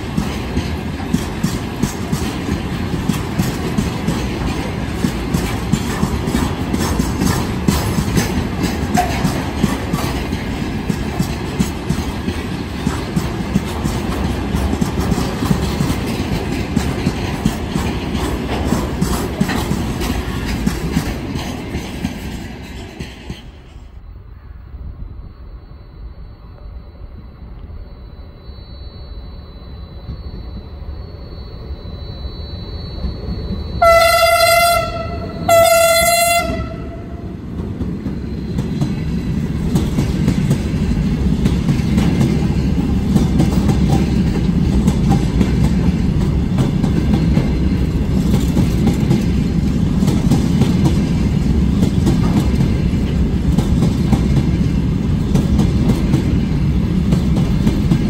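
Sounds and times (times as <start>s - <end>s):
wheels clattering over rail joints: 0.0s - 23.6s, 37.5s - 58.0s
train running past: 0.0s - 58.0s
locomotive horn blasts: 33.8s - 37.2s.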